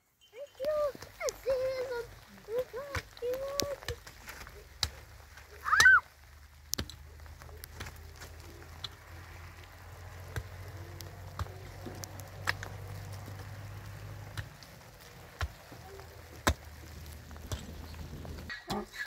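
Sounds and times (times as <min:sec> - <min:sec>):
hand tool striking stony soil: 0:06.7 - 0:09.1, 0:10.3 - 0:18.9.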